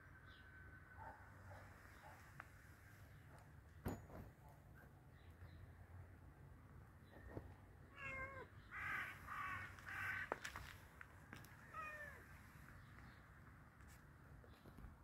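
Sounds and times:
crow cawing: 8.7s - 10.7s.

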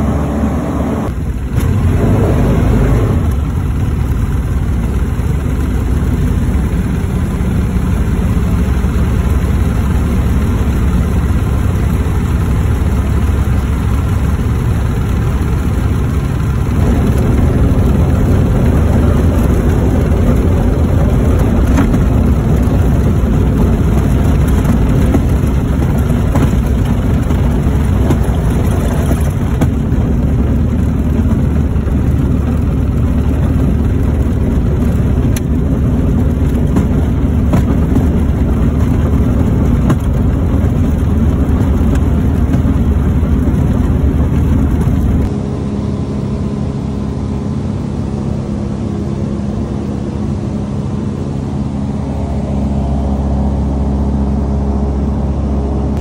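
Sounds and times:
light aircraft engine and propeller: 0.0s - 56.0s.

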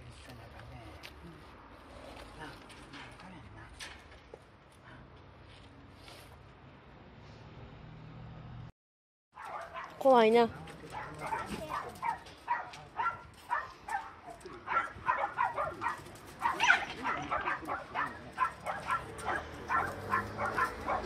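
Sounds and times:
dog yelping: 9.4s - 10.0s, 10.9s - 21.0s.

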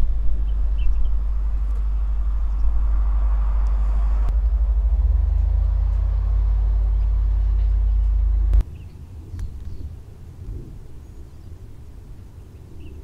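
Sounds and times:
tank diesel engines rumbling: 0.0s - 8.6s.

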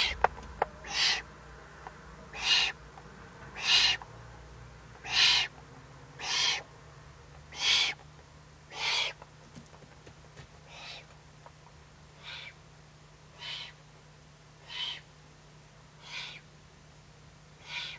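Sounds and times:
owlet hissing calls: 0.0s - 0.2s, 0.8s - 1.3s, 2.3s - 2.8s, 3.5s - 4.0s, 5.0s - 5.5s, 6.2s - 6.7s, 7.5s - 8.0s, 8.7s - 9.2s, 10.7s - 11.1s, 12.2s - 12.6s, 13.3s - 13.8s, 14.6s - 15.1s, 16.0s - 16.5s, 17.6s - 17.9s.

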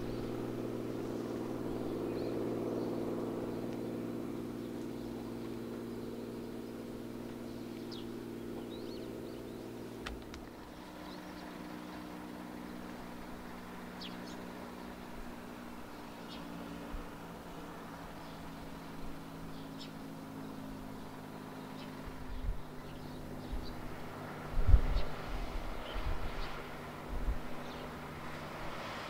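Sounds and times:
birds chirping: 0.0s - 29.0s
propeller plane engine droning: 0.0s - 29.0s.

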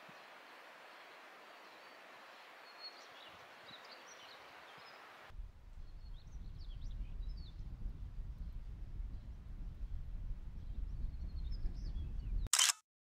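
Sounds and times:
stream rushing: 0.0s - 5.3s
small birds chirping: 0.1s - 5.1s
wind rumble on microphone: 5.3s - 12.5s.

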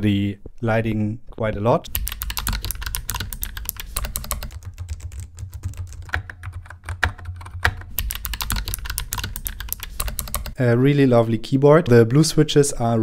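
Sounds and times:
fast mechanical keyboard typing: 1.9s - 10.6s.

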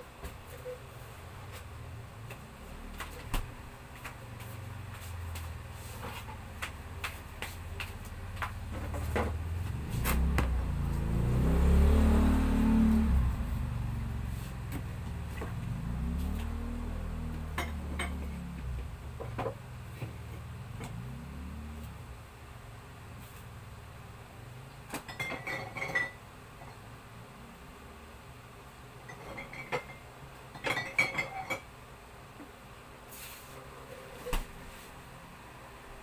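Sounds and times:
vehicle engine passing: 1.7s - 24.8s.

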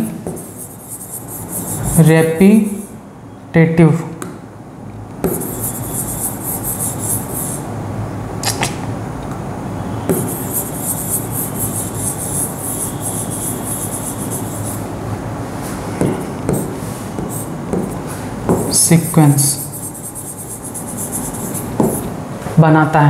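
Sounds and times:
scratchy writing on board: 0.0s - 3.0s, 5.2s - 7.7s, 10.1s - 14.9s, 16.1s - 22.1s.

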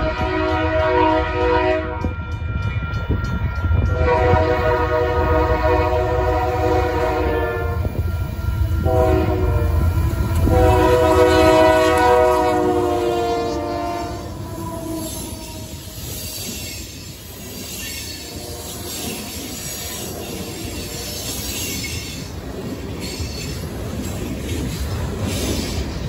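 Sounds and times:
locomotive air horn blasts: 0.0s - 2.5s, 3.8s - 16.0s, 18.2s - 19.3s
train passing: 0.0s - 26.0s.

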